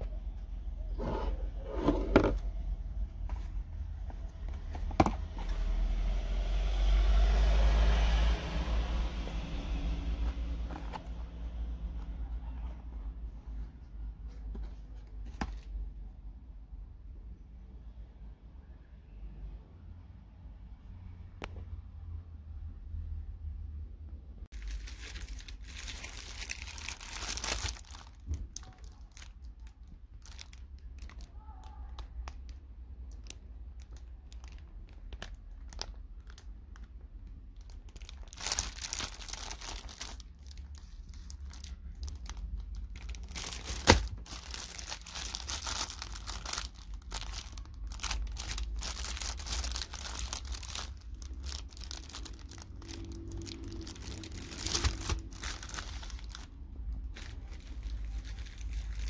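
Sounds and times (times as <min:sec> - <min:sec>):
plastic packaging crinkling: 0:24.5 - 0:59.0.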